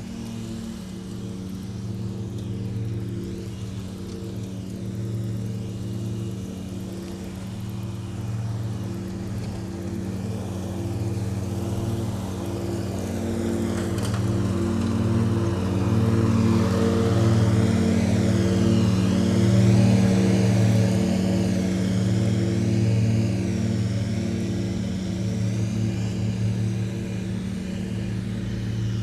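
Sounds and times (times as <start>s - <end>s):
riding lawn mower engine: 0.0s - 29.0s.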